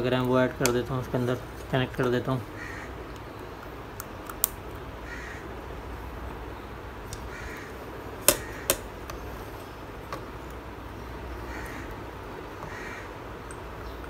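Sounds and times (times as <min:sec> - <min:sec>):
crows cawing: 0:02.5 - 0:03.1, 0:05.0 - 0:05.6, 0:07.2 - 0:08.8, 0:11.4 - 0:13.2.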